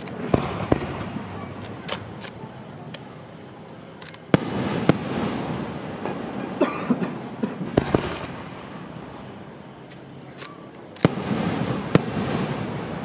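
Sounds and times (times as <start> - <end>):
crackling firework pops: 0.0 - 3.1, 7.6 - 8.6, 9.9 - 13.0
firework shells bursting: 7.2 - 8.7.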